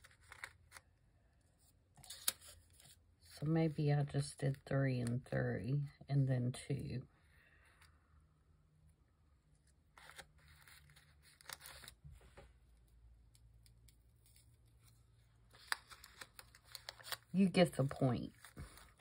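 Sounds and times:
paper rustling: 0.0 - 0.8, 10.0 - 12.5, 14.2 - 19.0.

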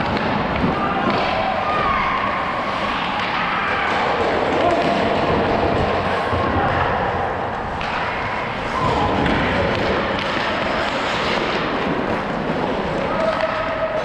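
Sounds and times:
sticks and puck knocking: 0.0 - 1.6, 7.6 - 13.8
skate blades scraping ice: 7.8 - 13.1.

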